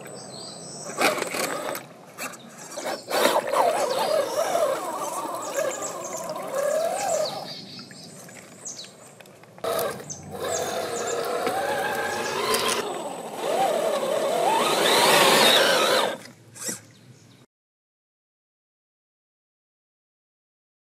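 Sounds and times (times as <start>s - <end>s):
electric motor whining: 2.8s - 7.5s, 9.6s - 16.8s.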